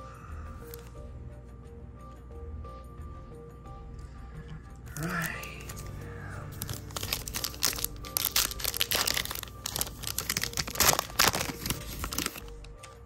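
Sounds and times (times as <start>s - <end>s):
foil wrapper crinkling: 6.6s - 12.9s.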